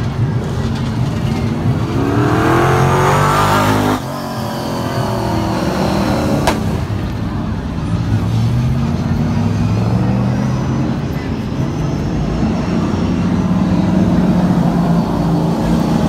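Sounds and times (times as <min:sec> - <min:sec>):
race car engines passing by: 0:00.0 - 0:16.0.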